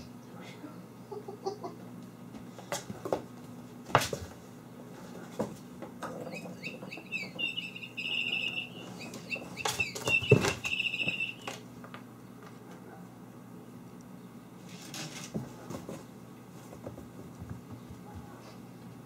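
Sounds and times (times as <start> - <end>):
small bird chirping: 6.2 - 11.6
kittens jumping and landing: 9.2 - 11.2.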